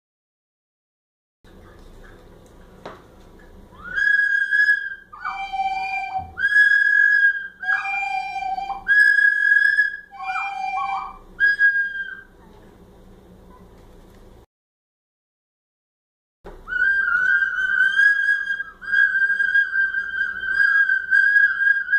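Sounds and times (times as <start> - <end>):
small whistles blown: 3.7 - 12.4, 16.5 - 21.9.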